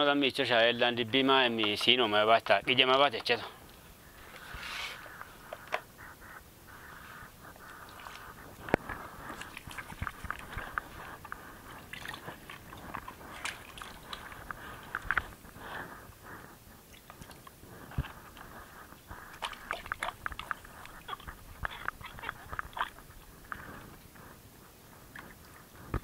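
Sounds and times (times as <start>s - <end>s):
hands rubbing: 4.2s - 5.7s
water splashing: 7.6s - 15.6s, 16.9s - 23.3s.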